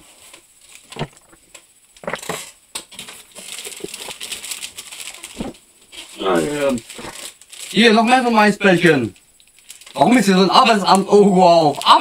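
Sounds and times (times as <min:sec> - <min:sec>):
plastic wrappers crinkling: 0:00.2 - 0:12.0.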